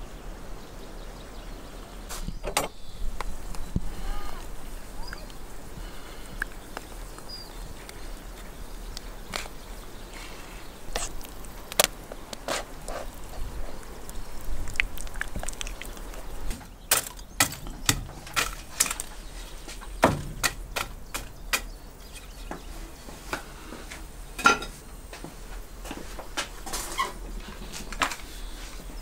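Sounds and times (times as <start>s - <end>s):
charcoal being raked: 3.8s - 21.2s, 25.5s - 29.0s.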